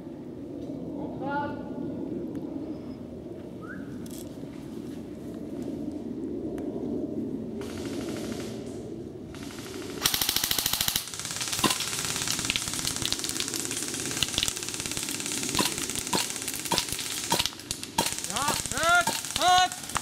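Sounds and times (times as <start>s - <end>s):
steady crackle: 7.6s - 20.0s
airsoft gun full-auto burst: 9.4s - 20.0s.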